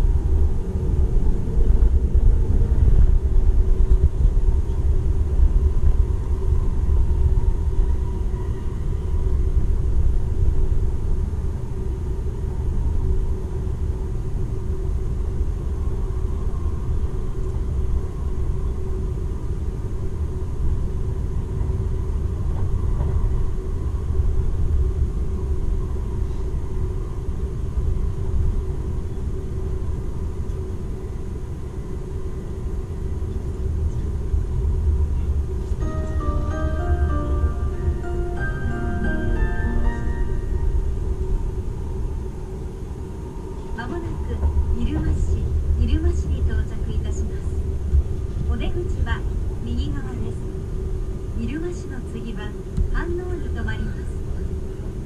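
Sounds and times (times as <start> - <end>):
train wheels rumbling on track: 0.0 - 31.5, 32.2 - 55.0
steady train hum: 0.0 - 55.0.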